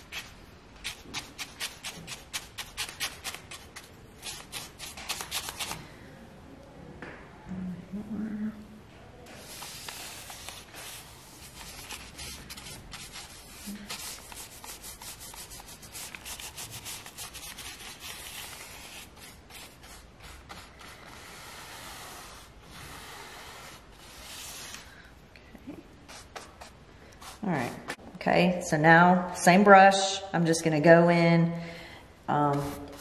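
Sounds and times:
paintbrush scrubbing on canvas: 9.4s - 24.8s.

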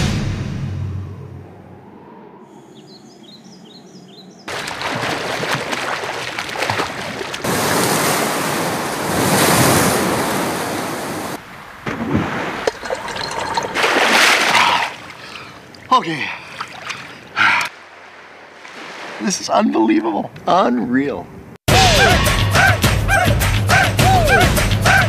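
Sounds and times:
boat hull rushing through water: 4.5s - 17.3s.

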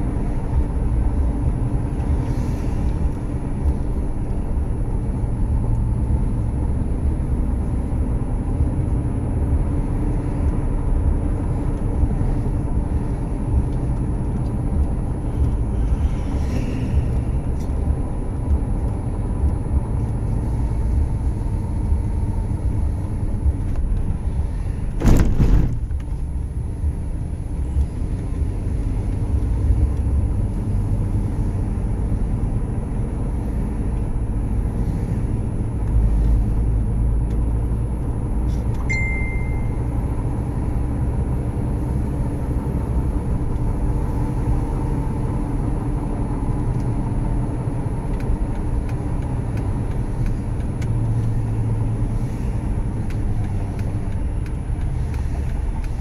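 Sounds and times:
road and engine rumble: 0.0s - 56.0s
thump: 24.9s - 26.1s
short high beep: 38.8s - 39.8s.

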